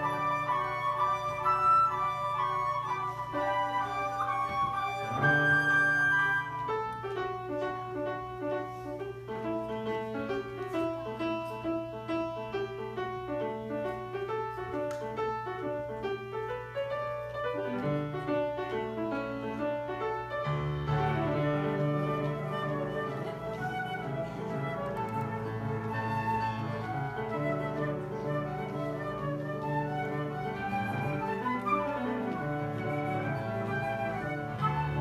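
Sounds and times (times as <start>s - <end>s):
flute holding high note: 0.0s - 6.8s, 20.9s - 35.0s.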